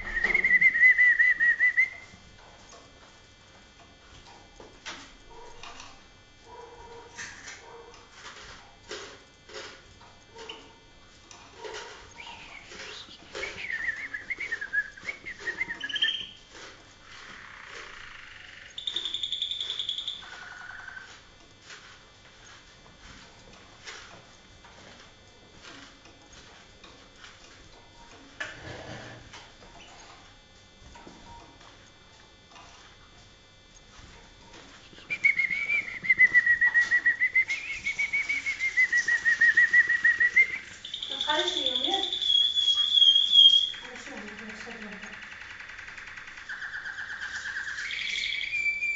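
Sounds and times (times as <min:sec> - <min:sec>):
canary trilling: 0:10.3 - 0:16.4, 0:17.0 - 0:21.2, 0:35.2 - 0:48.9.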